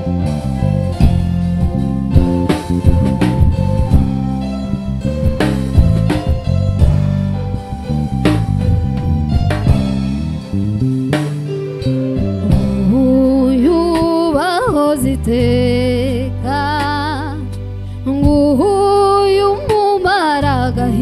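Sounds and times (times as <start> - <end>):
drum kit hits: 0.0 - 13.2
electric bass guitar line: 0.0 - 21.0
held keyboard notes: 0.0 - 21.0.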